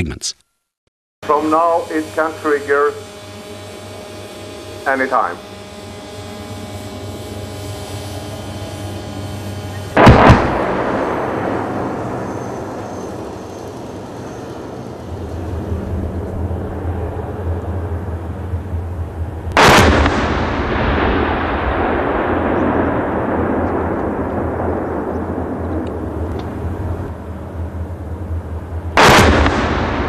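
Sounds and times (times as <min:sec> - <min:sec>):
artillery blasts with echoing rumble: 0:10.0 - 0:13.2, 0:19.5 - 0:27.2, 0:28.5 - 0:30.0.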